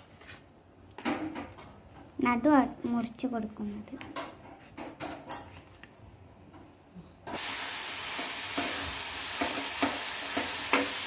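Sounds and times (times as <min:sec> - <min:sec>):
onions sizzling in a pan: 0:07.3 - 0:11.0.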